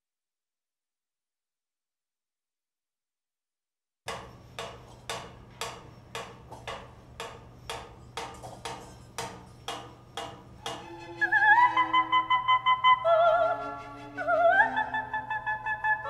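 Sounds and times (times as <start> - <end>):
hammer blows on steel: 4.1 - 11.4.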